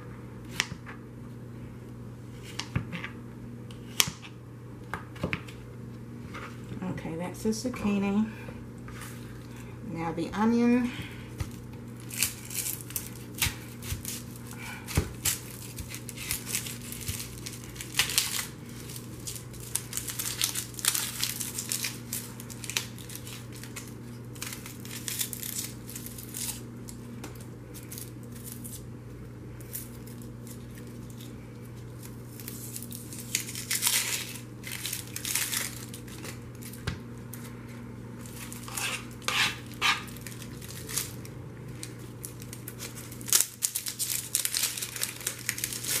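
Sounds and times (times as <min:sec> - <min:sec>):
steady low hum: 0:00.0 - 0:46.0
onion skin crinkling and tearing: 0:11.3 - 0:28.9, 0:29.6 - 0:37.5, 0:38.2 - 0:46.0.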